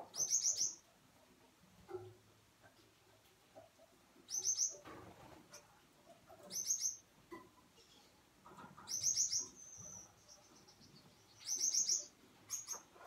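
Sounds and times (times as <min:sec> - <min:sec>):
small finch chirping: 0:00.0 - 0:00.9, 0:04.3 - 0:04.8, 0:06.3 - 0:07.1, 0:07.7 - 0:13.0.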